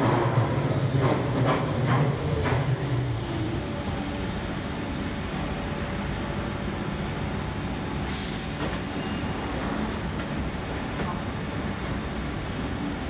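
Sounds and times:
train rumbling to a stop: 0.0s - 13.0s
sharp hiss of released air: 8.0s - 9.5s.

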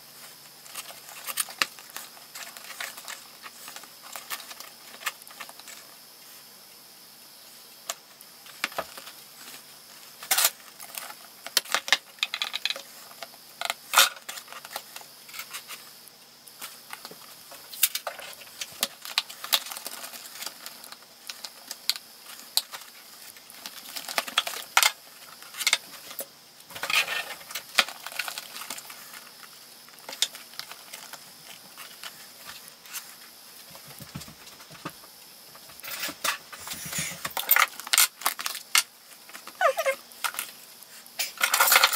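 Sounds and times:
small parts clicking and rattling: 10.2s - 15.8s, 16.6s - 33.1s, 35.7s - 39.6s, 40.2s - 41.9s.

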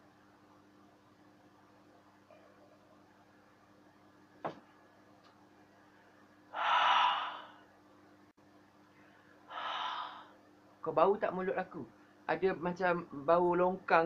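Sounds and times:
man breathing out hard: 6.6s - 7.6s, 9.5s - 10.4s.

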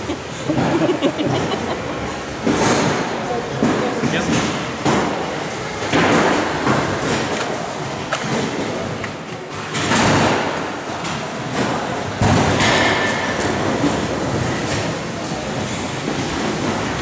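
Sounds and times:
hall noise: 0.0s - 9.5s.

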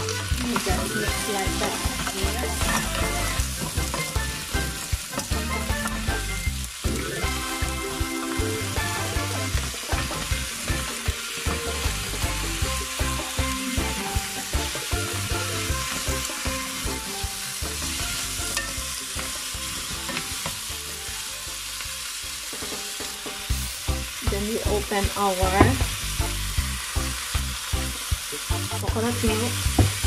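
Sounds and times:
wooden utensils scraping pan: 0.0s - 6.1s
food sizzling in hot oil: 0.0s - 30.0s.

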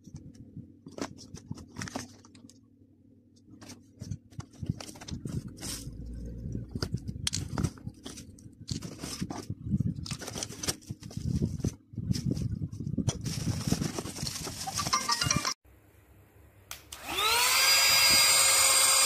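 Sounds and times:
bubble wrap and cardboard crinkling: 3.5s - 15.2s.

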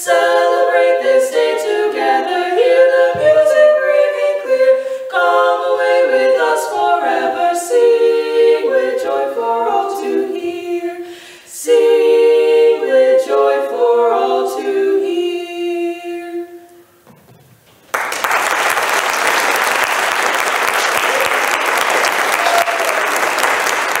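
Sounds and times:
women singing in harmony: 0.0s - 16.8s
audience applause: 17.9s - 24.0s.

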